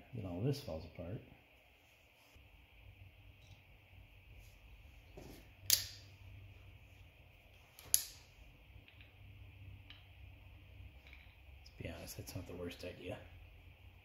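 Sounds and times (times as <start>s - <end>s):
faint steady hum: 0.0s - 14.0s
sharp clicks of tools: 5.7s - 6.0s, 7.8s - 8.2s.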